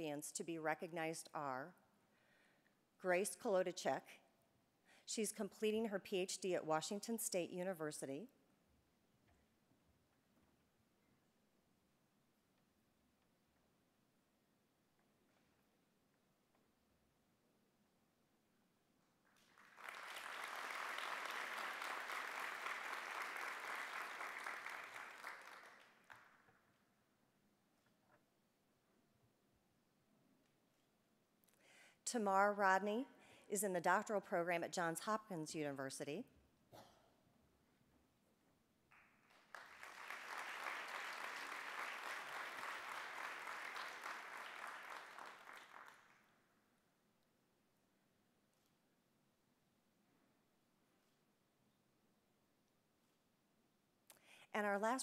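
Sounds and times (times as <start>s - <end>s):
audience applauding: 19.4s - 26.4s, 38.9s - 46.2s.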